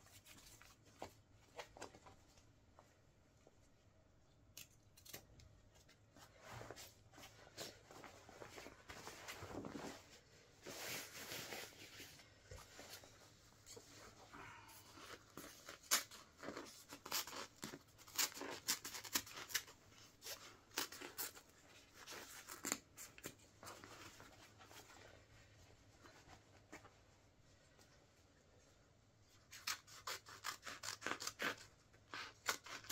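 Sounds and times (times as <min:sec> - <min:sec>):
fabric tearing and rustling: 0:14.9 - 0:23.2, 0:29.5 - 0:32.9.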